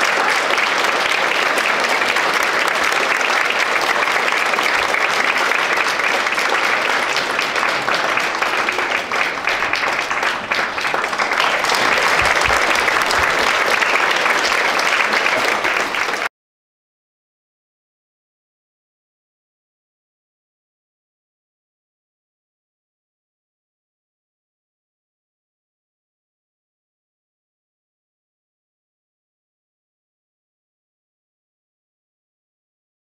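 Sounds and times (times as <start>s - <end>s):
audience applauding: 0.0s - 16.3s.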